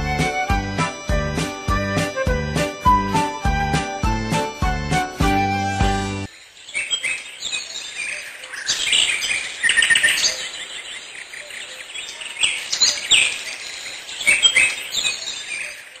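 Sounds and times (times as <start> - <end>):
songbirds trilling and chirping: 6.3 - 16.0.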